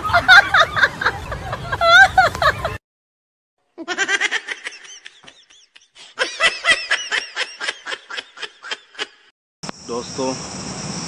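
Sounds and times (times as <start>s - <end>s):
high-pitched laughter: 0.0s - 2.8s, 3.8s - 9.3s.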